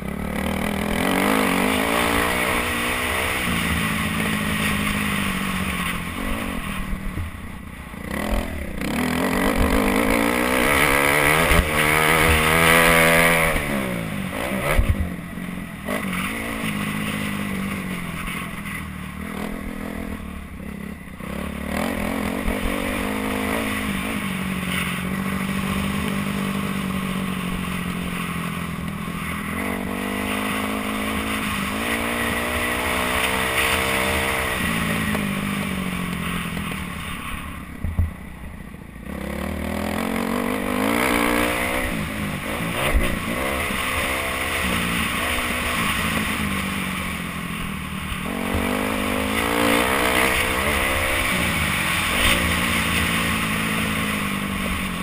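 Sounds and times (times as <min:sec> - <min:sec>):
motocross engine revving: 0:00.0 - 0:05.5, 0:08.0 - 0:15.0, 0:21.2 - 0:28.2, 0:39.1 - 0:55.0.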